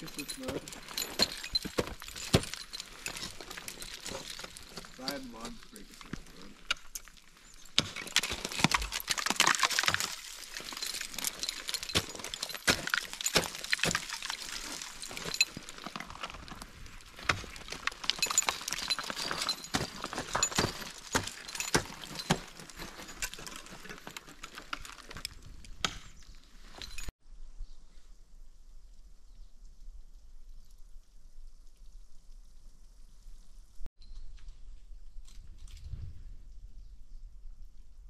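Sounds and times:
ice and snow crunching underfoot: 0:00.0 - 0:27.1.

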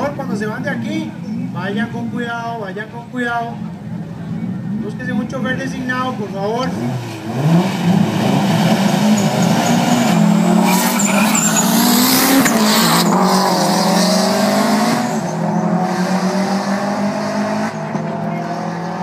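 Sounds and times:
race car engines revving: 0:00.0 - 0:19.0.

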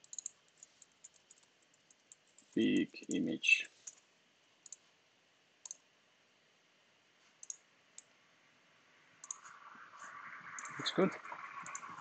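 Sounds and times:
faint computer mouse clicks: 0:00.0 - 0:02.6, 0:04.6 - 0:04.9, 0:05.6 - 0:05.8, 0:07.4 - 0:08.1, 0:09.2 - 0:09.5, 0:10.6 - 0:10.8.

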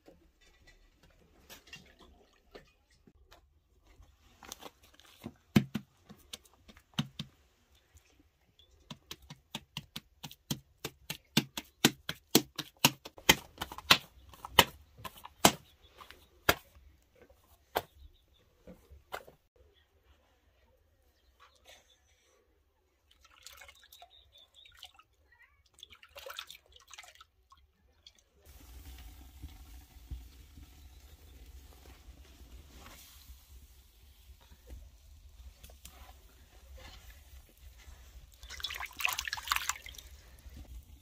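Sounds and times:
hands slapping dough: 0:04.4 - 0:07.6, 0:08.7 - 0:16.8.

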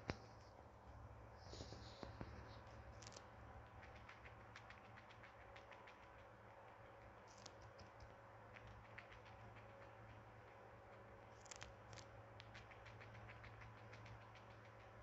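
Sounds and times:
hamster chewing: 0:01.4 - 0:15.0.

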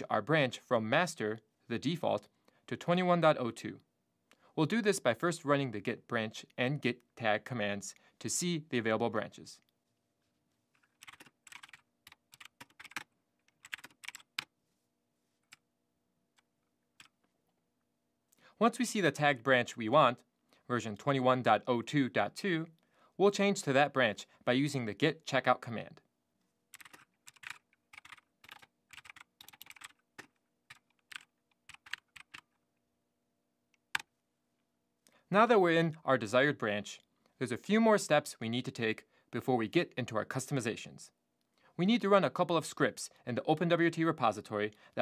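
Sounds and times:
typing on computer keyboard: 0:10.8 - 0:14.5, 0:16.4 - 0:17.3, 0:26.7 - 0:32.6.

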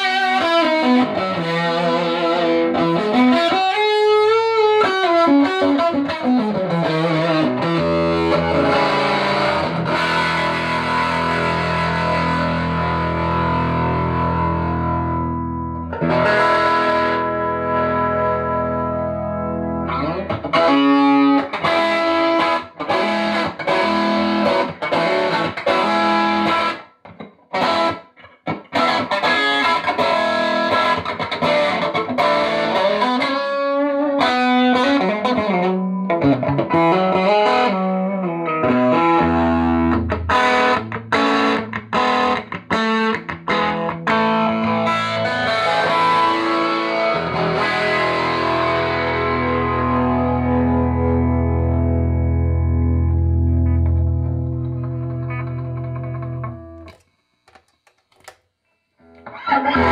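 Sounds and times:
electric guitar through tube amp: 0:00.0 - 0:58.4, 0:59.0 - 0:59.9.

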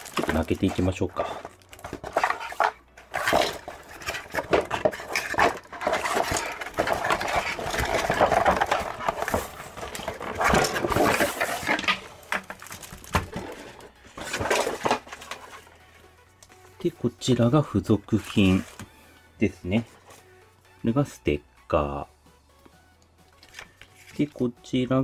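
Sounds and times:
plastic bag crinkling: 0:00.0 - 0:15.2
cardboard scraping and knocking: 0:00.0 - 0:15.6.

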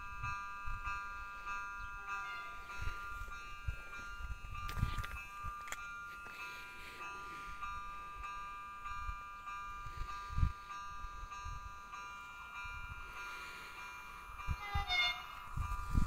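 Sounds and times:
wind buffeting microphone: 0:00.0 - 0:06.2, 0:14.2 - 0:16.0
level crossing warning chime: 0:00.0 - 0:16.0.

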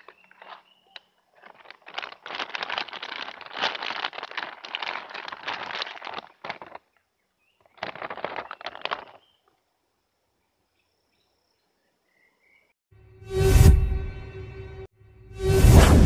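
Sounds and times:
plastic bag crinkling: 0:00.0 - 0:07.0, 0:07.6 - 0:09.5.

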